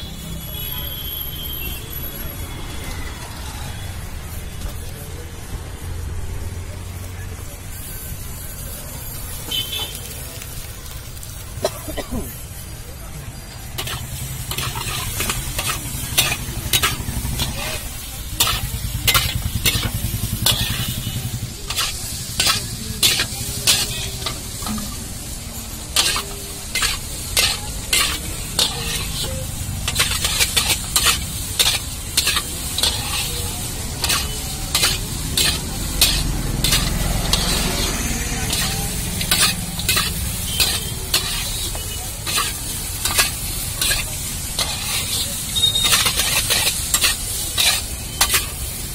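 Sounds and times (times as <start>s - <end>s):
food sizzling: 0.0s - 48.9s
spatula scraping against a pan: 13.4s - 48.9s.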